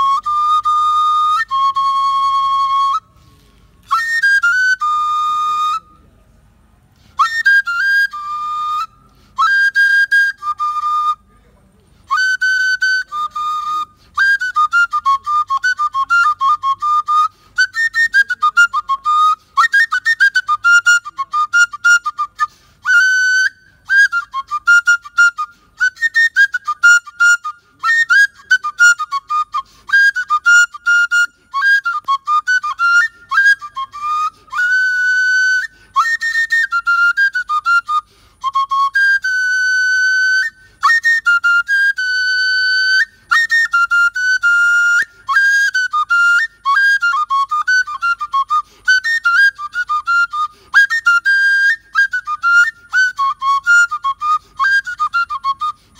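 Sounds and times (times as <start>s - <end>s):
wooden flute playing: 0.0s - 55.9s.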